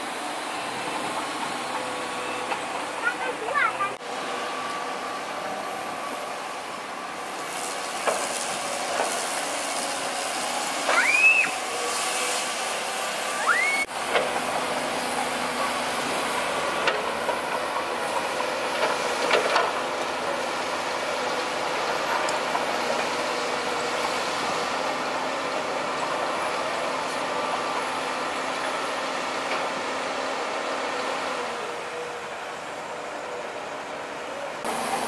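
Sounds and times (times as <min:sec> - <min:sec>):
excavator engines and hydraulics: 0:00.0 - 0:35.0
short rising squeals: 0:10.8 - 0:12.3, 0:13.2 - 0:13.9.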